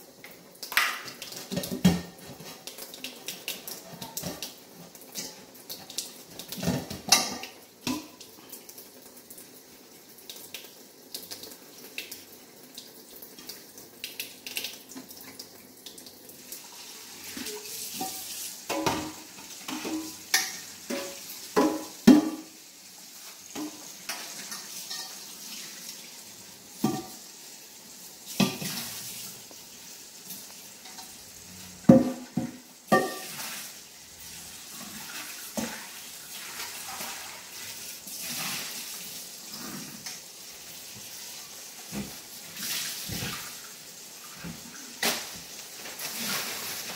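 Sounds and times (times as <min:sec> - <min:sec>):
tap water running: 0:00.0 - 0:46.9
metal pot clanking against sink: 0:06.5 - 0:08.2, 0:17.4 - 0:22.5, 0:26.8 - 0:27.2, 0:31.8 - 0:33.4.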